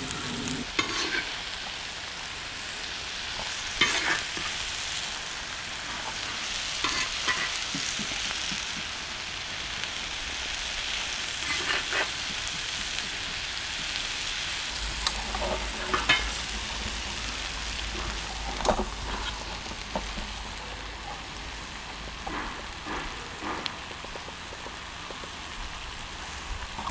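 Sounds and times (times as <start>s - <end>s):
metal spatula scraping griddle: 0.0s - 1.4s, 3.7s - 4.6s, 5.8s - 8.8s, 11.3s - 13.7s, 15.0s - 20.4s
food sizzling on a griddle: 0.0s - 26.9s.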